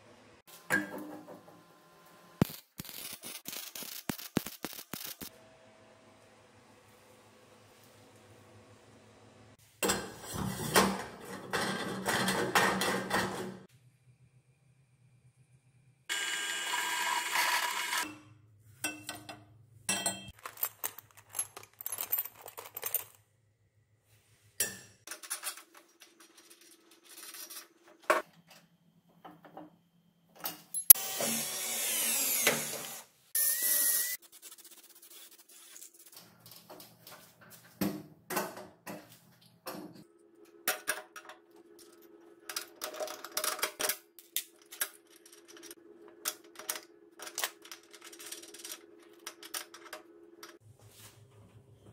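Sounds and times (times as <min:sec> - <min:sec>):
metal parts clicking and knocking: 0:19.9 - 0:23.2, 0:42.5 - 0:50.6
power tool bursts: 0:30.9 - 0:34.2.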